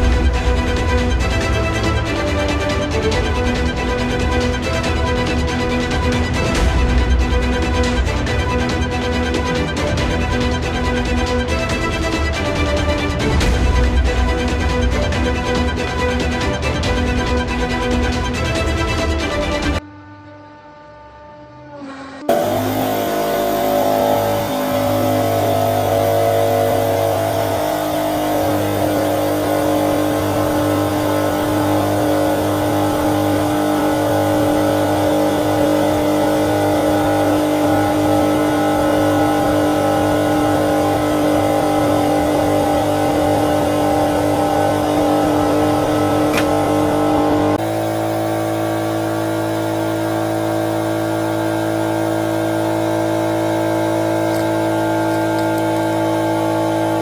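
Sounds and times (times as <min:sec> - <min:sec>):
hydraulic press pump humming: 0:22.3 - 0:57.0.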